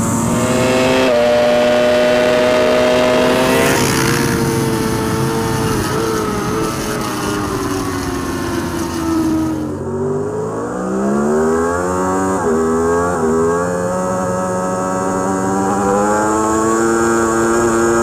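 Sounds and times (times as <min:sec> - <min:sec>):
wind rush: 0:00.0 - 0:09.8
superbike engine at high revs: 0:00.0 - 0:18.0.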